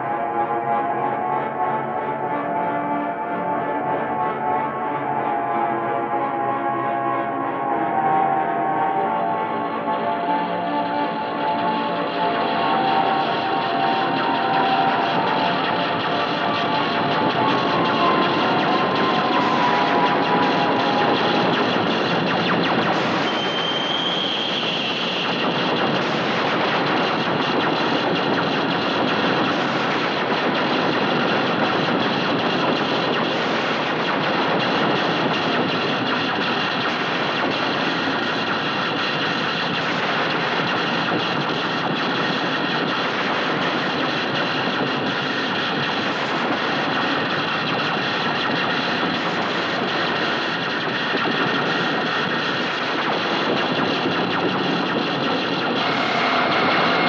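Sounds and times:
harsh distorted noise music: 0.0 - 57.0
thin high whistling tone: 23.3 - 24.7.

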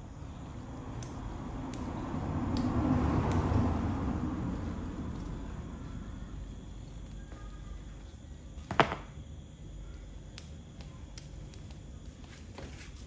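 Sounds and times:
low background hum: 0.0 - 13.0
sandal slapping on tile floor: 8.6 - 9.2.

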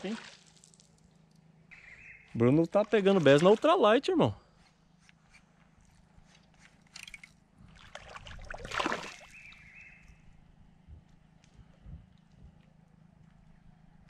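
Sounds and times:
splash on lake surface: 7.8 - 9.5.

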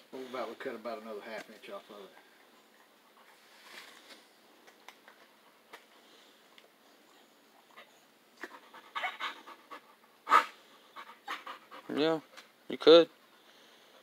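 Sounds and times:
dog panting: 1.7 - 3.5, 7.5 - 14.0.

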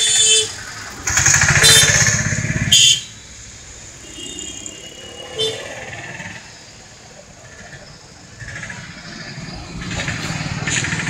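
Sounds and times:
traffic hum: 0.0 - 11.0
vehicle horn blaring: 1.6 - 3.1, 4.0 - 5.9
small engine passing: 3.9 - 11.0.

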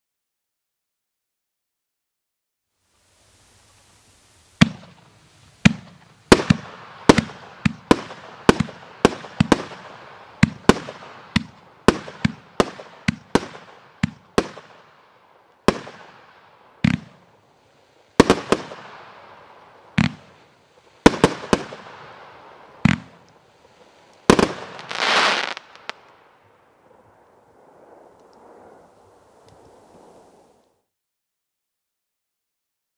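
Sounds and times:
hiss of burning stars: 2.7 - 30.8
fireworks reports: 3.4 - 14.9, 15.7 - 26.0.

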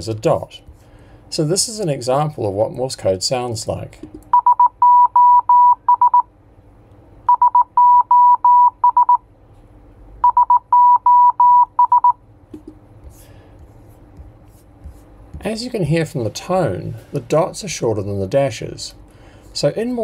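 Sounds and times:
morse code beeps: 4.3 - 6.3, 7.3 - 9.2, 10.2 - 12.2.

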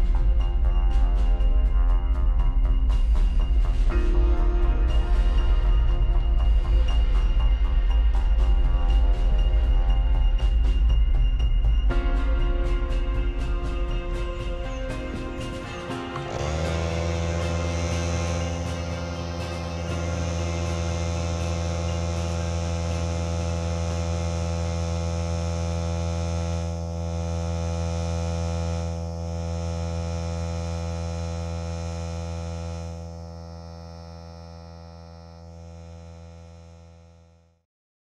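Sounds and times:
air compressor humming: 8.9 - 37.4.

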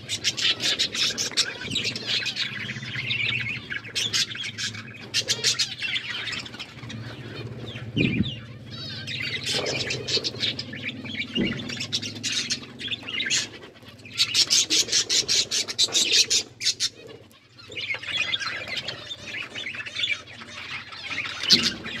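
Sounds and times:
budgerigars chattering: 0.0 - 22.0.

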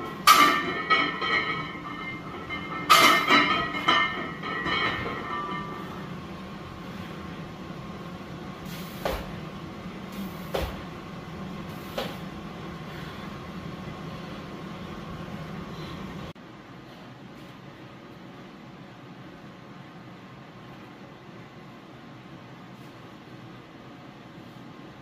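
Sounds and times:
barbell clanking on rack: 0.2 - 5.8.

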